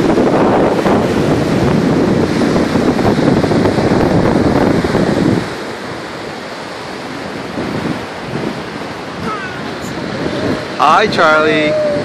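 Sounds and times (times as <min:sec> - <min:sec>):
ocean surf on beach: 0:00.0 - 0:12.0
wind buffeting microphone: 0:00.0 - 0:12.0.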